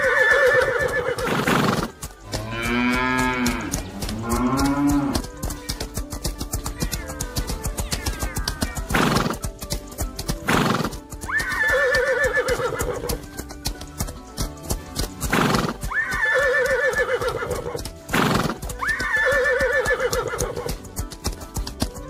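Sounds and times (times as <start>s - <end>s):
horse whinnying: 0.0s - 2.0s, 6.6s - 9.4s, 10.5s - 13.3s, 15.3s - 20.8s
background music: 0.0s - 22.0s
horse hooves galloping: 0.0s - 22.0s.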